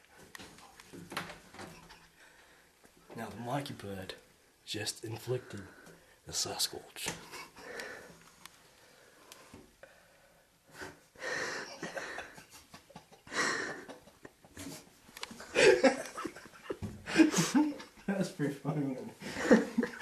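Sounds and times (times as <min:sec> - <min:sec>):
person breathing in bursts: 0:07.5 - 0:12.3.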